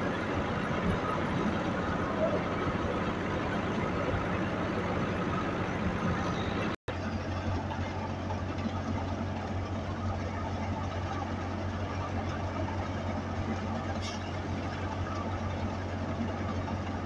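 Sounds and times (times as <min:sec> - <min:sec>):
threshing drum whirring: 0:00.0 - 0:09.7
diesel tractor engine drone: 0:00.0 - 0:17.0.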